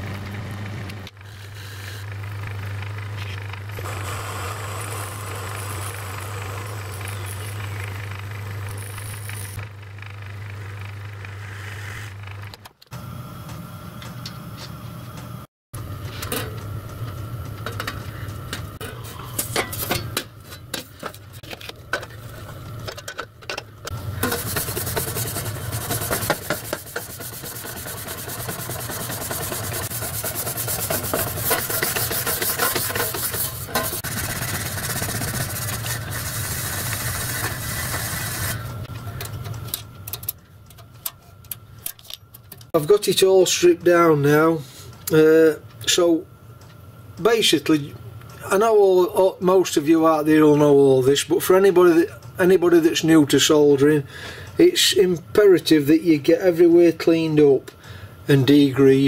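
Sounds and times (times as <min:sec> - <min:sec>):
lathe humming: 0:02.0 - 0:11.4, 0:23.8 - 0:39.2
scraping and rubbing copper: 0:03.8 - 0:09.6, 0:23.8 - 0:38.8.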